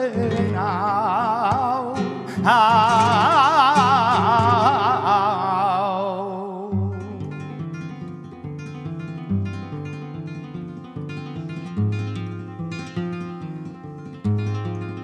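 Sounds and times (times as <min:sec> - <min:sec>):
man singing with vibrato: 0:00.0 - 0:07.7
flamenco guitar: 0:00.0 - 0:15.0.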